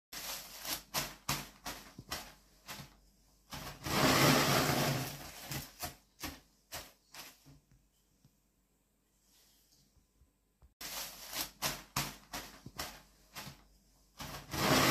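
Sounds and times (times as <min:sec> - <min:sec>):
rolling pin rolling: 0:00.2 - 0:07.6, 0:10.8 - 0:14.9.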